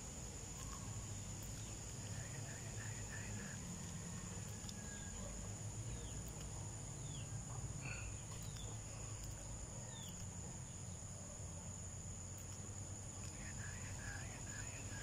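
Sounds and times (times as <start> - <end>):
insects droning: 0.0 - 15.0
faint bird chirps: 0.5 - 11.5.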